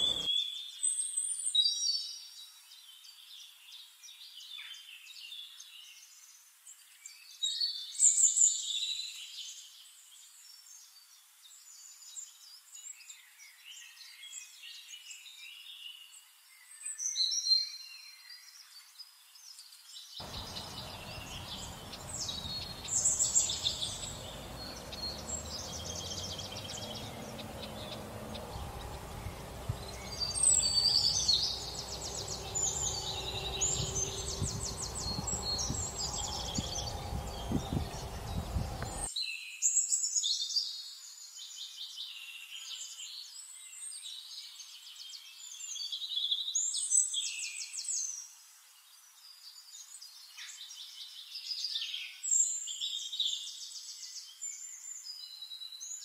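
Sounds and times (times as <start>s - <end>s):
faint low background noise: 0.0s - 0.3s, 19.2s - 39.1s
songbirds chirping and trilling: 0.0s - 0.3s, 20.2s - 39.1s.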